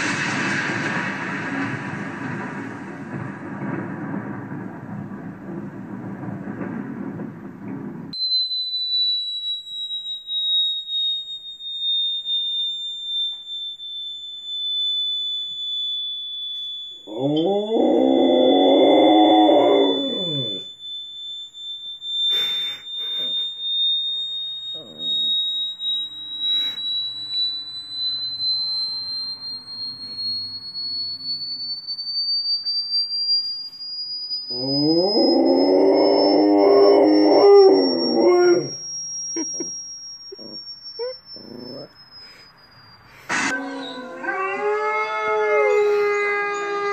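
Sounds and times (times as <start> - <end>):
high-pitched electronic tone: 8.2 - 46.9
dog howling: 17.1 - 20.6, 34.5 - 38.8, 43.4 - 46.9.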